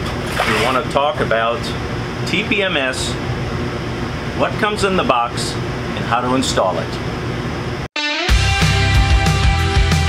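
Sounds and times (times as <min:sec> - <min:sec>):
rock music with driving beat: 0:08.0 - 0:10.0.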